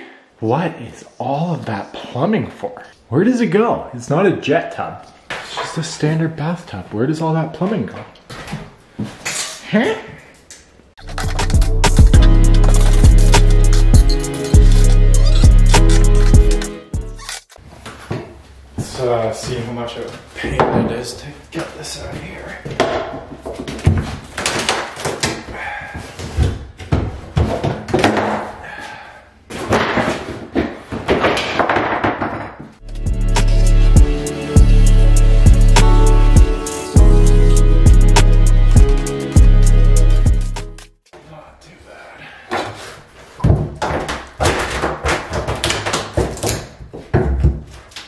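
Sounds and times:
wood and metal scraping: 11.0 - 18.0.

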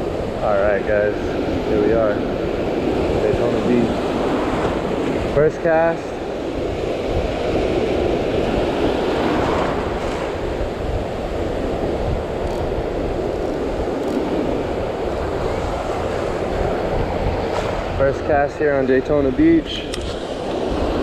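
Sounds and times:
ocean surf breaking: 0.0 - 21.0
wind on microphone: 0.0 - 21.0.

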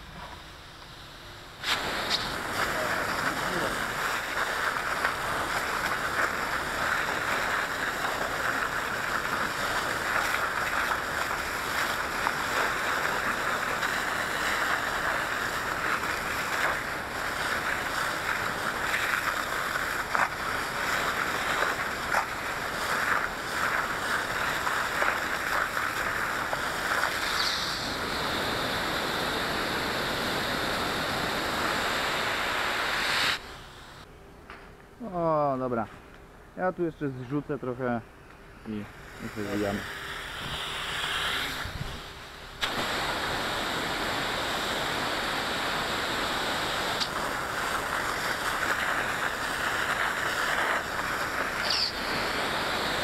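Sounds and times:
small crackles of fire: 0.1 - 31.8, 32.4 - 53.0
hose spraying water: 1.5 - 34.1, 38.7 - 53.0.

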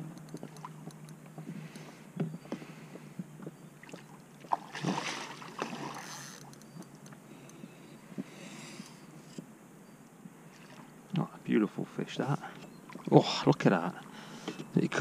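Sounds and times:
water splashing: 3.8 - 6.4, 10.5 - 11.0.

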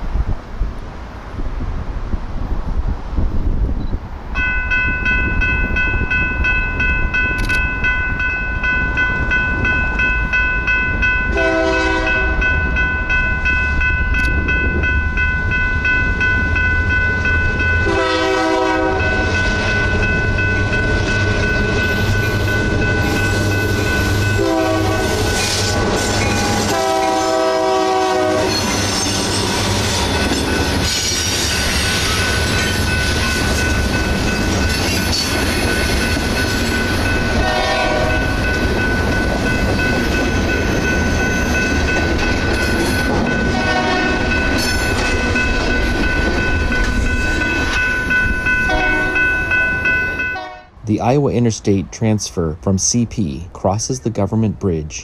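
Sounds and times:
diesel locomotive engine: 0.0 - 54.8
locomotive bell ringing: 4.4 - 51.2
train horn blasts: 11.3 - 12.6, 17.8 - 19.4, 23.0 - 28.9, 37.4 - 38.4, 43.5 - 44.4, 48.7 - 49.4, 50.2 - 50.8.

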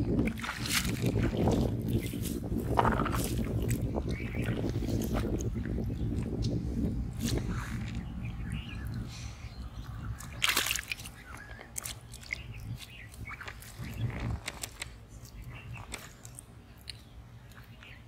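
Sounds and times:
fish splashing in shallow water: 0.0 - 6.4, 7.0 - 17.7
low rumble: 0.0 - 10.4.

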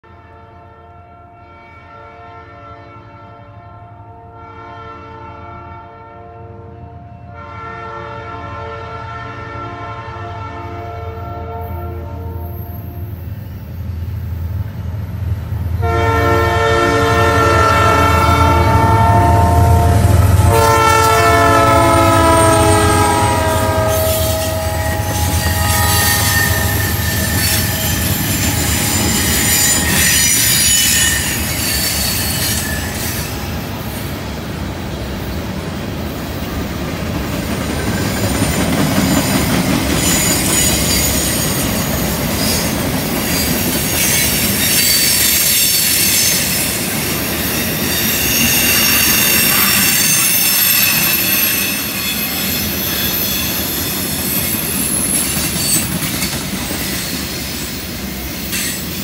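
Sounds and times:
train horn blasts: 0.0 - 13.1, 15.8 - 33.5, 44.1 - 53.7
wheels clacking on rails: 19.7 - 59.0
wheel squeal: 23.9 - 33.5, 39.0 - 57.8.

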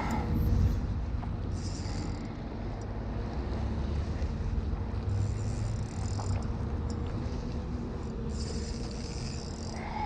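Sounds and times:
wind rumbling on microphone: 0.0 - 5.6
fishing reel whirring: 1.6 - 2.3, 5.2 - 6.5, 8.3 - 10.0.

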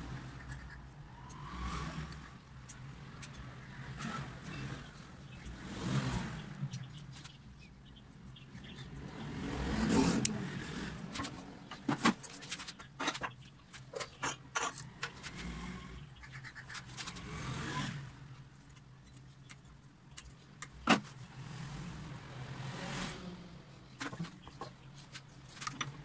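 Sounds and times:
plastic parts clicking and rattling: 24.0 - 26.0.

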